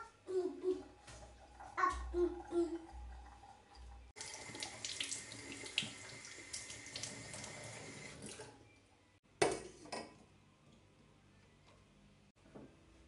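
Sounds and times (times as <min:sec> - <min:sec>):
water splashing into kettle: 0:04.2 - 0:08.5.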